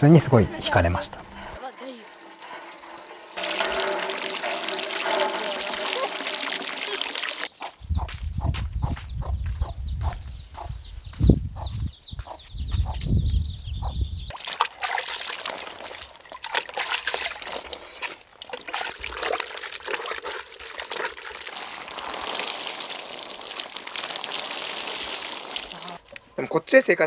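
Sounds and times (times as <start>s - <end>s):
water splashing from bucket: 2.4s - 7.5s, 14.3s - 26.2s
water poured over body: 3.3s - 7.5s, 14.3s - 26.2s
bird chirping: 6.9s - 14.3s.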